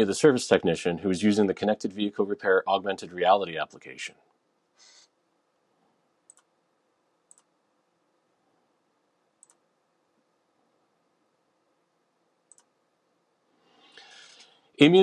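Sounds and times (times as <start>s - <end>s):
faint computer mouse clicks: 6.3s - 6.5s, 7.3s - 7.5s, 9.4s - 9.6s, 12.5s - 12.7s.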